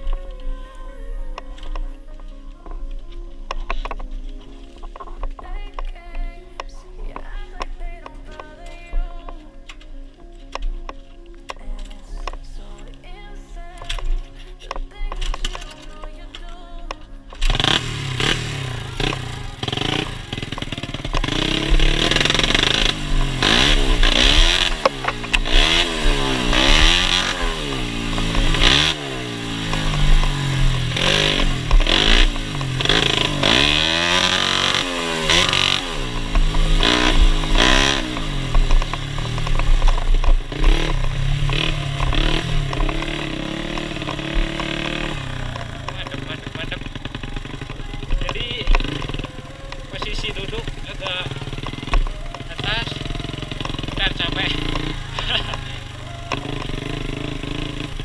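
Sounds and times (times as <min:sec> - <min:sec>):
motorbike engine revving: 0:16.9 - 0:58.0.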